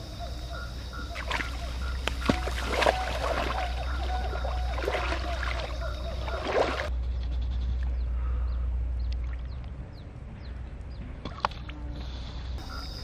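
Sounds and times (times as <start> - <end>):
water splashing from wading: 1.0 - 6.9.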